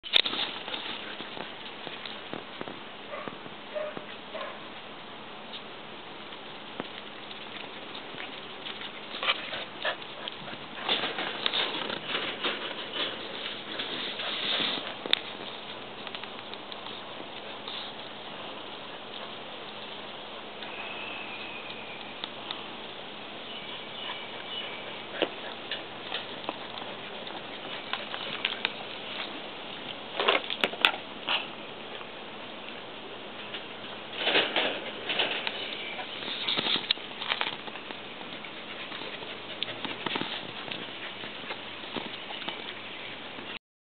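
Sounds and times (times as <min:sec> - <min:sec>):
dog panting: 0:08.8 - 0:11.1, 0:38.2 - 0:42.6.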